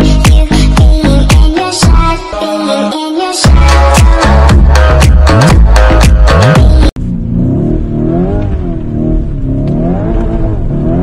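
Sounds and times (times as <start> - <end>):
electronic dance music: 0.0 - 7.0
car engine revving: 3.6 - 11.0.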